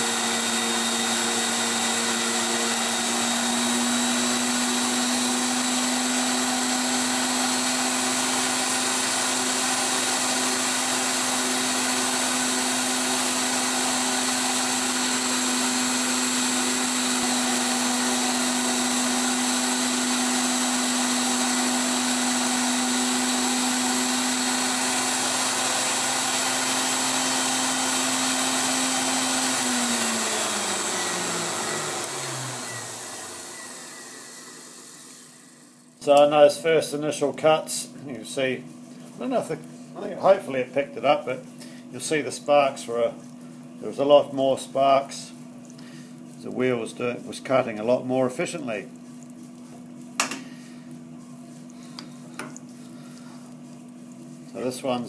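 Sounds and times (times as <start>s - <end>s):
grinder motor running: 0.0s - 35.7s.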